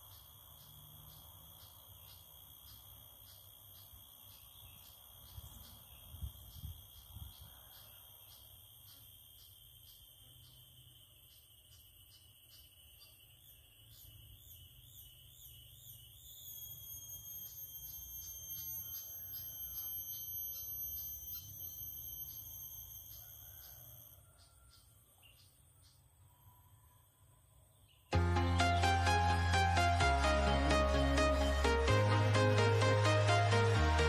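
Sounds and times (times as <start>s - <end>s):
insects shrilling: 0.0s - 24.5s.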